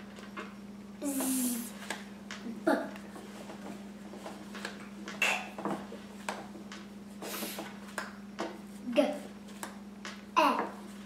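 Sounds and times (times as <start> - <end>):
steady low hum: 0.0 - 11.0
person speaking letter sounds: 8.8 - 9.3, 10.4 - 10.8.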